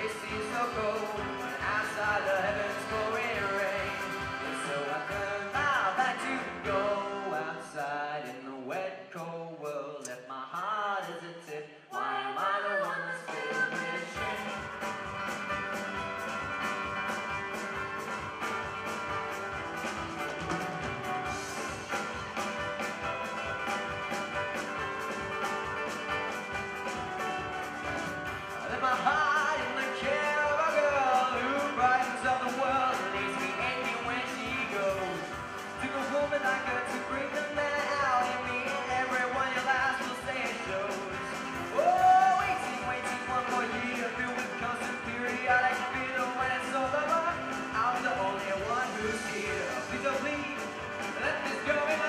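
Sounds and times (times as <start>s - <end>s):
accordion: 0.0s - 7.4s
upright bass: 0.0s - 7.9s, 14.2s - 52.0s
keyboard: 0.0s - 8.2s, 12.0s - 52.0s
folk-rock band playing: 0.0s - 8.4s, 13.3s - 52.0s
person singing: 0.0s - 15.0s, 27.9s - 52.0s
acoustic guitar: 0.0s - 52.0s
drums: 0.0s - 52.0s.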